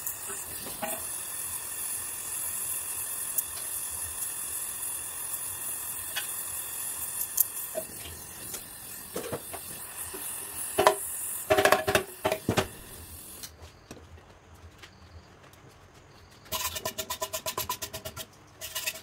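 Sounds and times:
gas torch flame hissing: 0.0 - 13.6.

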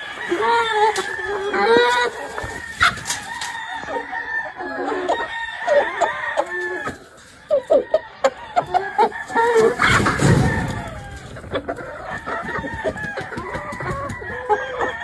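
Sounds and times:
hens clucking: 0.0 - 15.0
rooster crowing: 2.5 - 11.3.

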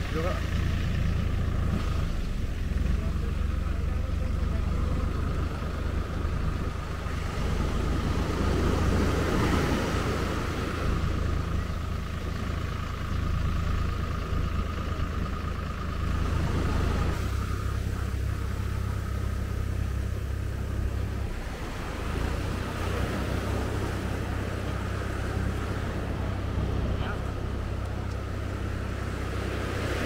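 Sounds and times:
low wind rumble on microphone: 1.0 - 13.6
thin steady whine: 2.1 - 30.0
surf washing up a beach: 4.4 - 12.5, 16.2 - 30.0
wave breaking: 6.7 - 11.6, 16.4 - 30.0.

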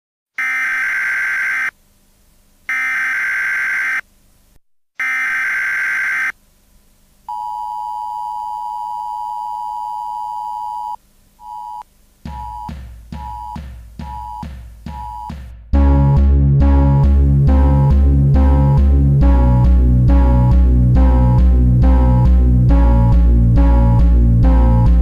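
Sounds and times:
harsh buzzer blasts: 0.4 - 1.7, 2.7 - 4.0, 5.0 - 6.3, 12.3 - 18.8
electronic beeps: 7.3 - 15.4
drum beat with bass: 12.2 - 25.0.

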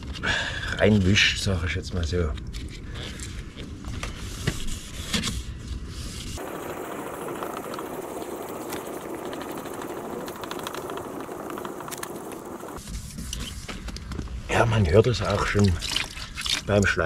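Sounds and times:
sandpaper rubbing on plastic: 4.1 - 6.4.

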